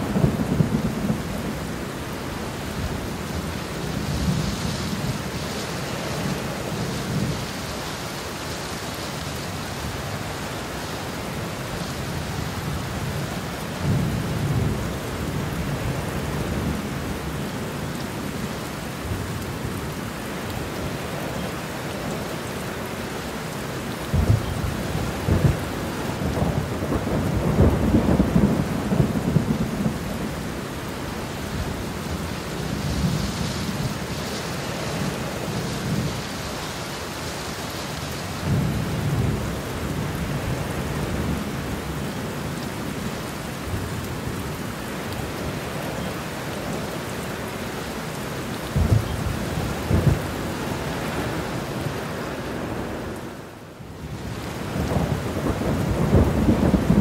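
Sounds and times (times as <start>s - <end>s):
heavy rain falling: 0.0s - 57.0s
rolling thunder: 24.1s - 30.4s, 48.7s - 50.4s, 54.6s - 57.0s.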